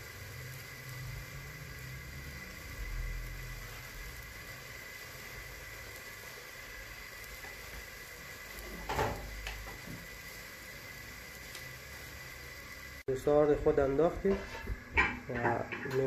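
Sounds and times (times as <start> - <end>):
water boiling in pot: 0.0 - 16.0.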